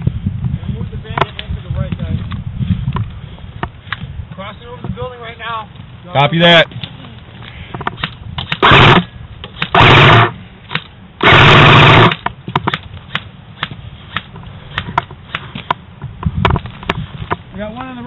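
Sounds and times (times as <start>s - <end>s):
airsoft gun full-auto bursts: 8.5s - 9.1s, 9.7s - 10.4s, 11.2s - 12.2s.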